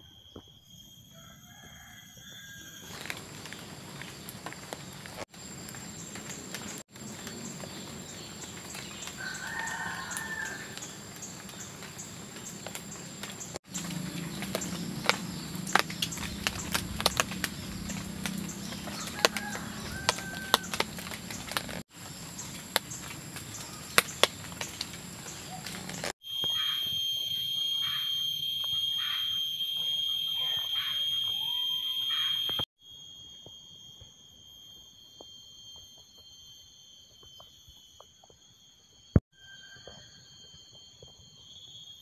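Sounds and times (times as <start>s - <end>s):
insects droning: 0.0s - 42.0s
short insect calls: 0.0s - 42.0s
rain drops on a tarp: 2.9s - 26.2s.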